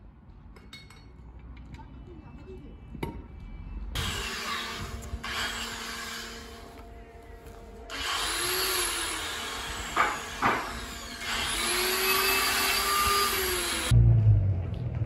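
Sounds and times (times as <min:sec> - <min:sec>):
power tool hiss and whine: 0:04.0 - 0:06.9, 0:07.5 - 0:13.9
low rumble: 0:13.3 - 0:15.0.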